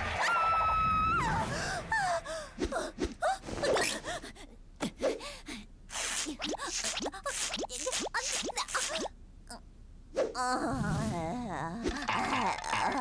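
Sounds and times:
short squeaky vocal noises: 5.9 - 9.1.

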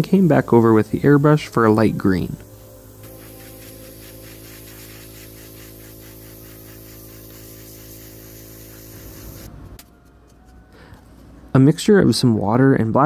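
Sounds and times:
airbrush hiss of air: 0.0 - 9.6.

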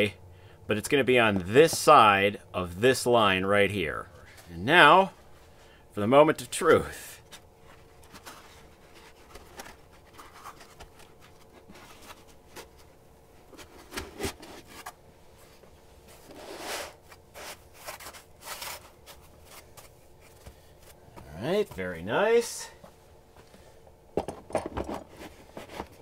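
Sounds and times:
foam scraping against plastic: 16.3 - 19.2.

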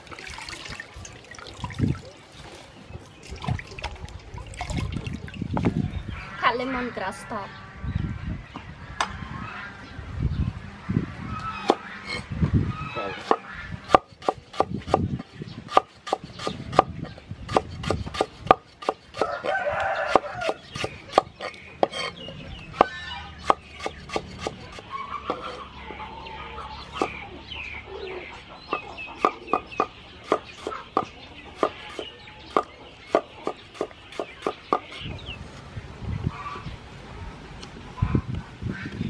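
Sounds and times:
chickens clucking: 11.2 - 35.4, 36.0 - 39.0
cleaver chopping on wooden board: 13.2 - 16.9, 17.5 - 22.1, 22.8 - 25.5, 29.2 - 35.0
rooster crowing: 19.2 - 20.6.

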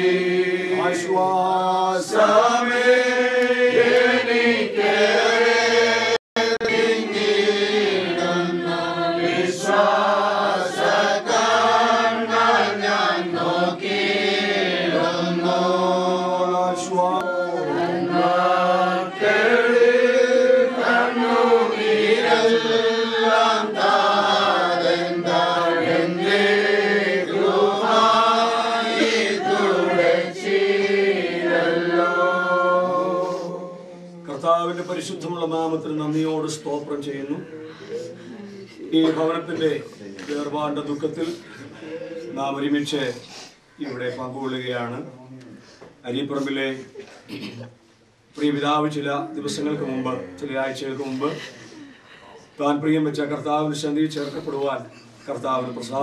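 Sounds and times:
group singing a hymn: 0.0 - 43.1.

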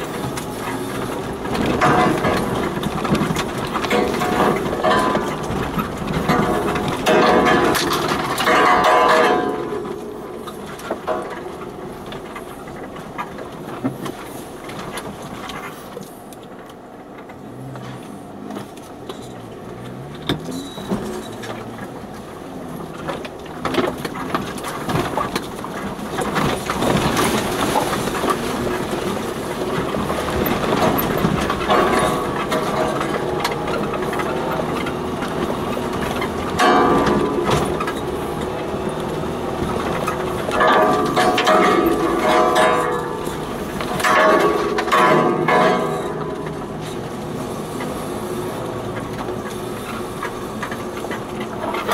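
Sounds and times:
knocks and rattles over ruts: 0.0 - 51.9
vehicle engine running: 0.0 - 51.9.

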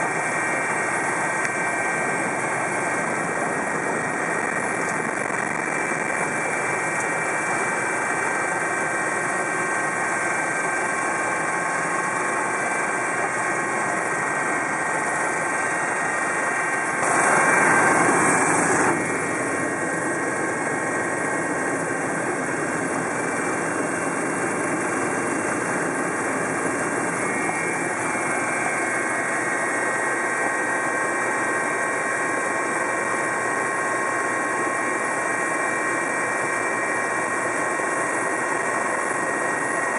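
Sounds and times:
helicopter turbine and rotor drone: 0.0 - 39.9
loud rush of noise: 14.0 - 23.6.

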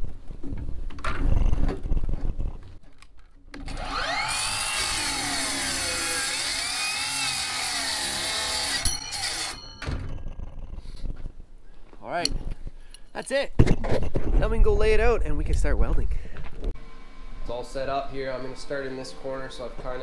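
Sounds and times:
mitre saw cutting metal: 3.6 - 9.8.

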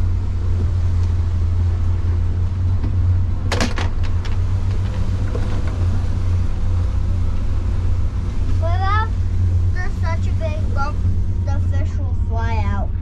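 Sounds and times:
outboard motor droning: 0.0 - 13.0.

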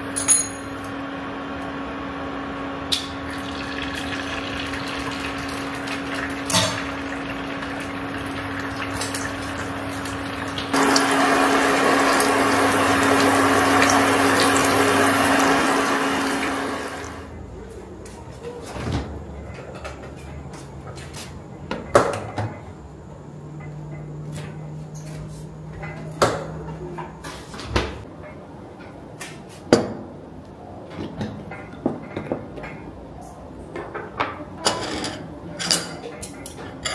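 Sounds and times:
eggs sizzling in a pan: 3.0 - 17.2.

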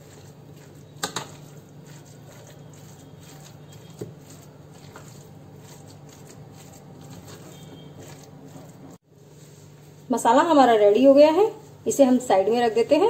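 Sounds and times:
metal spoon mixing in a bowl: 0.0 - 9.0.

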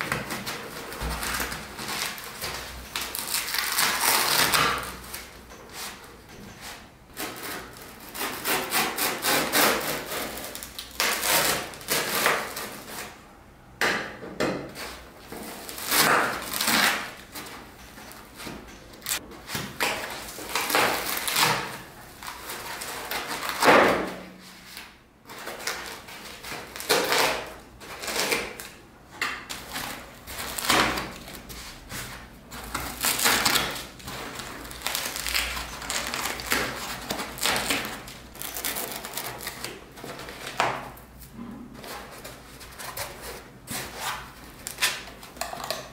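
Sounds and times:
knife cutting foam: 7.2 - 13.2.

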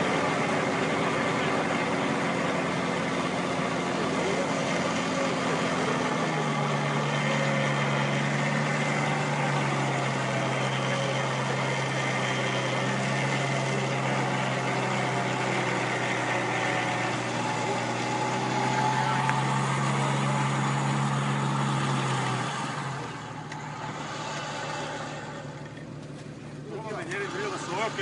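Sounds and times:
diesel engine running: 0.0 - 28.0.

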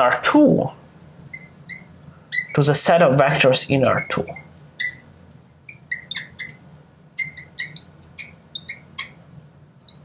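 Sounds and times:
chalk squeaking on blackboard: 1.3 - 2.7, 3.9 - 5.1, 5.7 - 6.6, 7.2 - 9.2.

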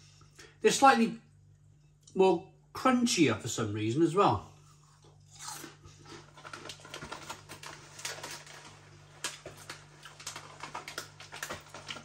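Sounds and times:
chewing crunchy crisps: 4.9 - 12.0.

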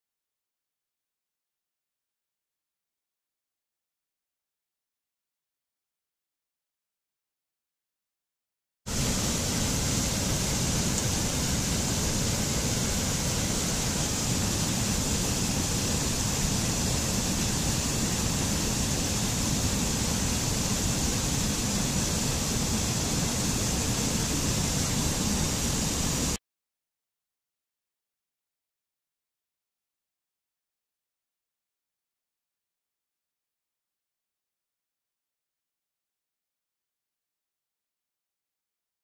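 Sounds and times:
stream rushing over rocks: 8.9 - 26.4.

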